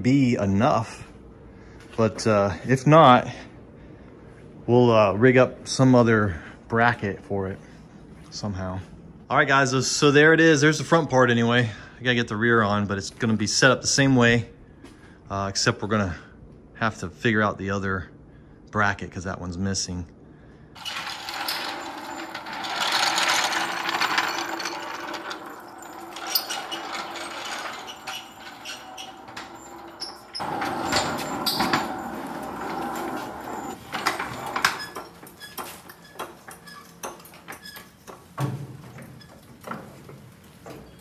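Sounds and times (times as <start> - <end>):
floor jack rattling and rolling: 20.8 - 35.8
metal clanks and knocks: 20.8 - 41.0.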